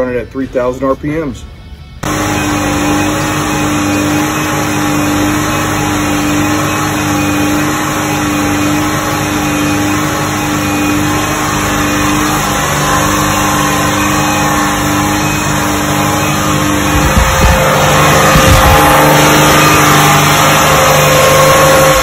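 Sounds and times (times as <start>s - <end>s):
car engine running at high revs: 2.0s - 22.0s.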